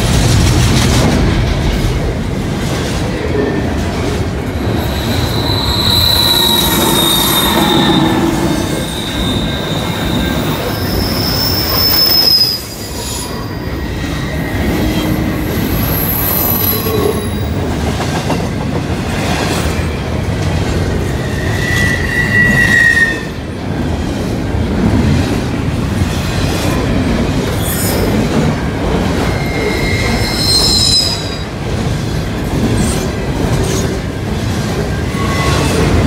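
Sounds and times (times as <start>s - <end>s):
steel wheels rolling on rail: 0.0s - 36.0s
high-pitched wheel squeals: 4.6s - 17.5s, 21.2s - 23.4s, 29.2s - 31.5s.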